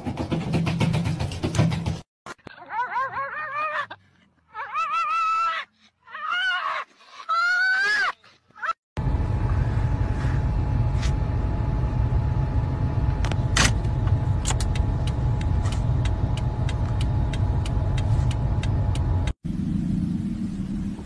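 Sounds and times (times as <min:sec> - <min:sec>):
car engine and road rumble: 0:09.0 - 0:21.0.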